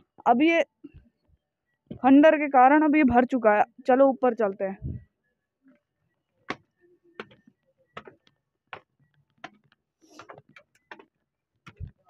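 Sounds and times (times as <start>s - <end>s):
footsteps on stone steps: 6.5s - 12.0s.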